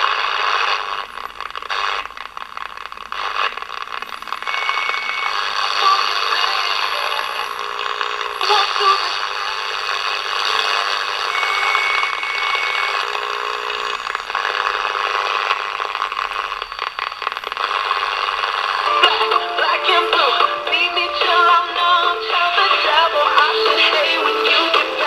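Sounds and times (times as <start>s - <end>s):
radio static hiss and crackle: 0.0s - 25.0s
radio whistle: 3.1s - 20.4s.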